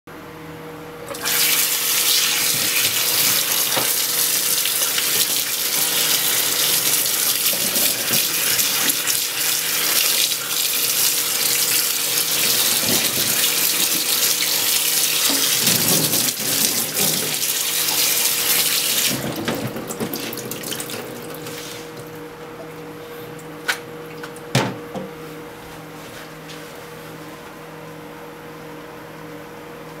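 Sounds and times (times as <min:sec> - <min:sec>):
tap water splashing in sink: 0:01.1 - 0:22.7.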